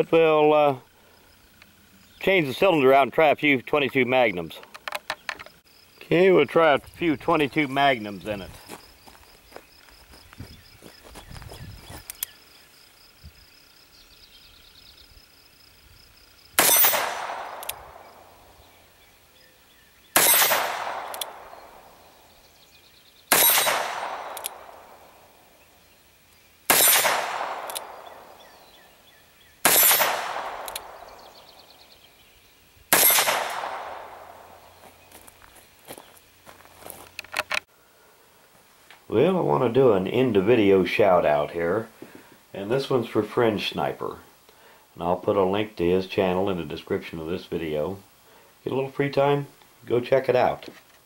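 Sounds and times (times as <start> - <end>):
revolver shots: 16.6 - 18.3, 20.2 - 21.9, 23.3 - 25.0, 26.7 - 28.4, 29.6 - 31.3, 32.9 - 34.6.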